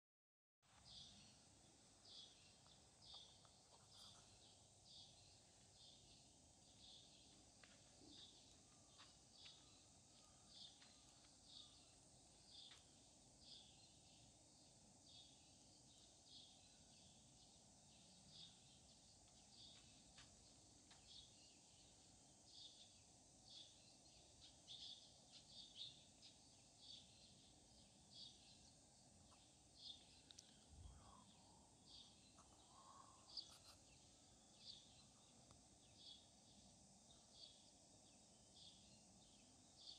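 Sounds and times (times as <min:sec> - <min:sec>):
faint high chirps: 0:00.7 - 0:14.4, 0:23.6 - 0:39.9.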